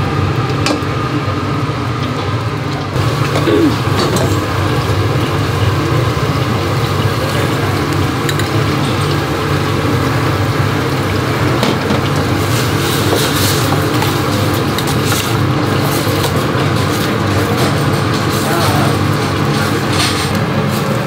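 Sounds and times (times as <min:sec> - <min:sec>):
gas stove burner roaring: 0:00.0 - 0:21.0
utensils clinking: 0:12.9 - 0:21.0.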